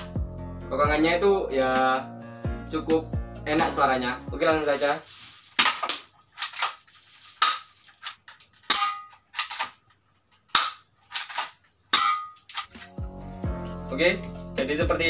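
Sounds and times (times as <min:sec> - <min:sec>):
pistol slide racking: 0:05.6 - 0:13.0
airsoft pistol shots clicking: 0:10.5 - 0:12.8.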